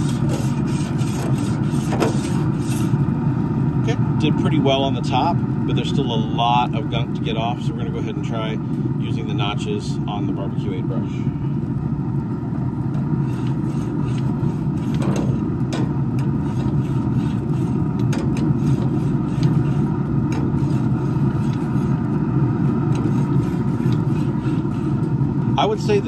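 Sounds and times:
metal scraper rasping on grill grates: 0.0 - 3.0, 13.2 - 22.1, 22.9 - 25.1
low rumble: 3.0 - 24.2.

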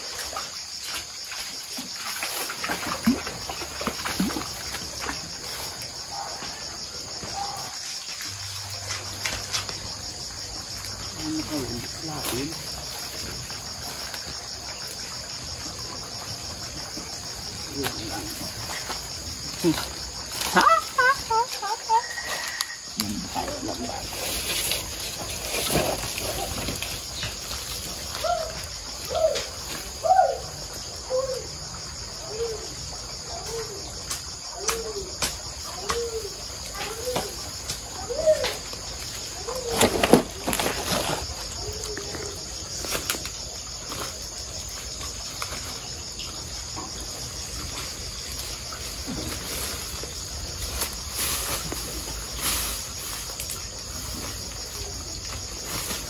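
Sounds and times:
crickets chirring: 0.0 - 56.0.

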